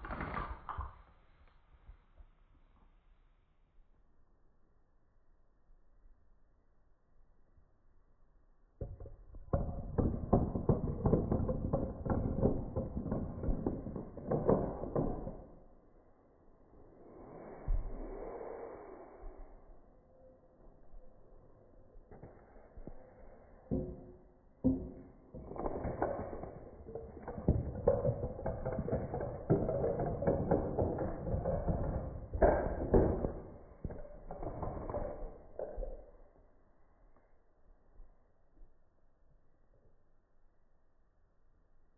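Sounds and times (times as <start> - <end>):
dominoes toppling and clacking: 9.5 - 15.6, 23.7 - 36.0.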